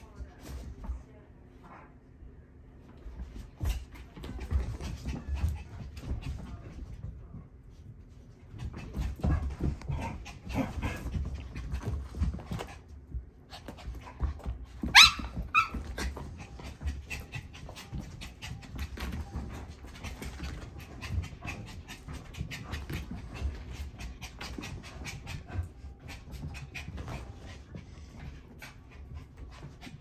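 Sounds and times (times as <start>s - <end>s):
dogs scuffling: 2.9s - 30.0s
dogs panting: 15.8s - 30.0s.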